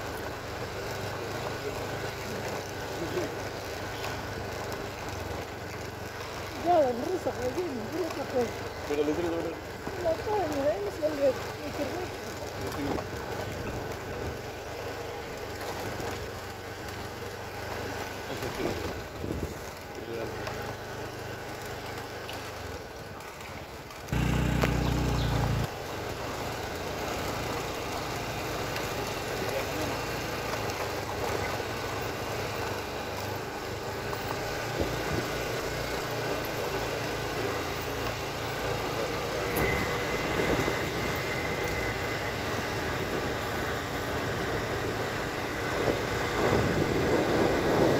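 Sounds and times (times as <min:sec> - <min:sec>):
motorcycle engine hum: 0:00.0 - 0:47.9
tyres on gravel road: 0:00.0 - 0:47.9
wind on microphone: 0:45.8 - 0:47.9.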